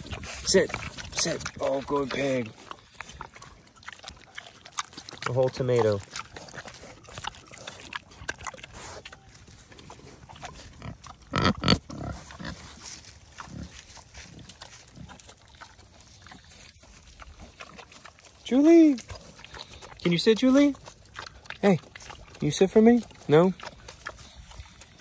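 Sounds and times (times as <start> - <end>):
pig chomping wetly: 0.0 - 25.0
loud pig calls: 10.8 - 12.7.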